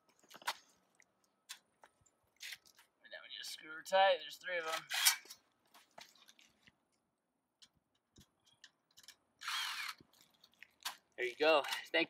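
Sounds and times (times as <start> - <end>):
cordless drill driving screw: 9.4 - 10.0.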